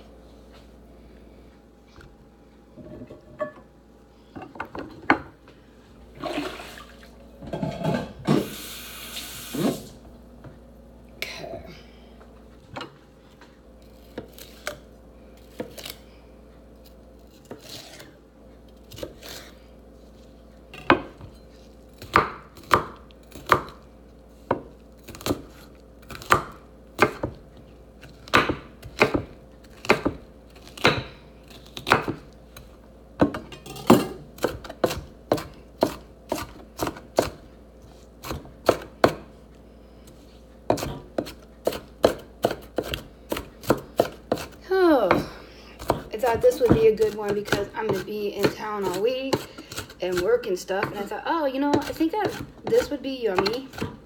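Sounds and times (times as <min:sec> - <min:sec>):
knife chopping on wooden board: 0:20.8 - 0:21.4, 0:22.0 - 0:23.8, 0:24.4 - 0:27.4, 0:28.0 - 0:37.4, 0:38.2 - 0:39.3, 0:40.7 - 0:51.1, 0:51.7 - 0:54.0.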